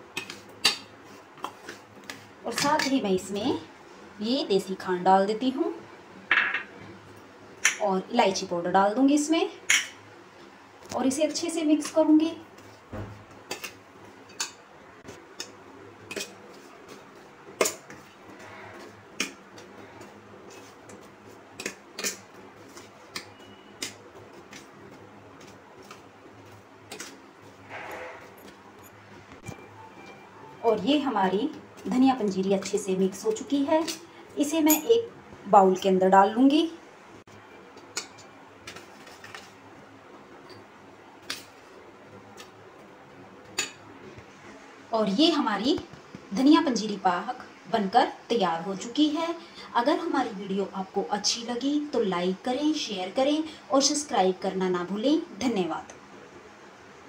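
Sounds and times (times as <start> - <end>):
faint scraping: 27.5 - 28.4.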